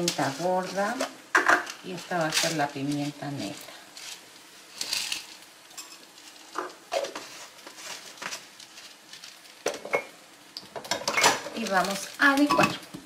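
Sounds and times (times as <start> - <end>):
dishes and utensils clinking: 10.8 - 11.6.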